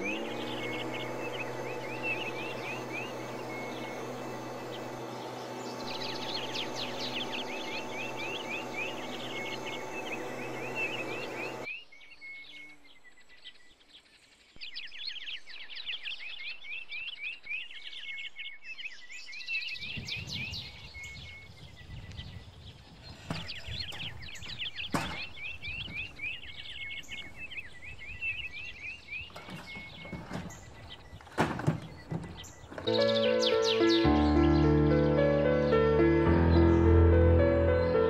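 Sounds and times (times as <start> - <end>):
mist sprayer motor hum: 0.0 - 11.7, 23.4 - 38.0
songbirds chirping and trilling: 0.0 - 38.0.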